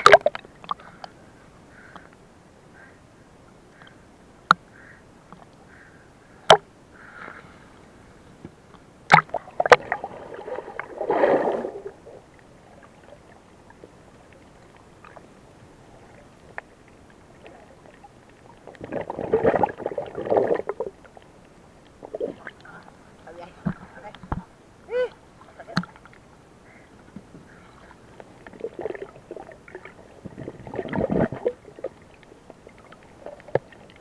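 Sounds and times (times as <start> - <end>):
sharp clicks underwater: 0.0 - 1.2, 1.8 - 2.2, 3.7 - 5.7, 6.4 - 6.7, 8.7 - 10.0, 25.6 - 26.3, 28.2 - 34.0
water rushing: 9.0 - 34.0.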